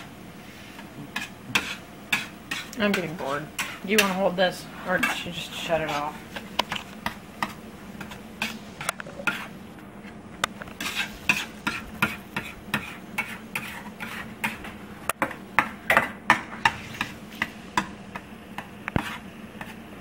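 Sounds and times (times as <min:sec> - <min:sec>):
fork scraping a metal frying pan: 0:01.2 - 0:04.2, 0:08.0 - 0:09.6, 0:10.8 - 0:14.8, 0:16.6 - 0:17.5, 0:18.9 - 0:19.8.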